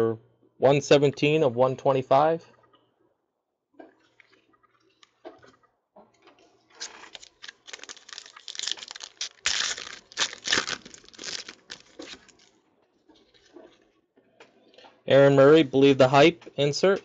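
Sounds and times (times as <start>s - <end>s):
foil wrapper being torn open: 6.8s - 12.5s.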